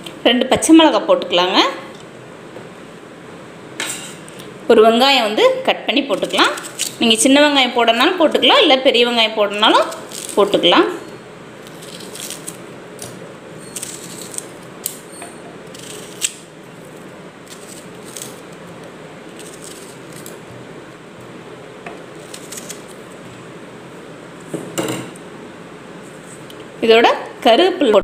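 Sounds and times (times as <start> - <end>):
knife slicing onion: 22.2 - 23.0.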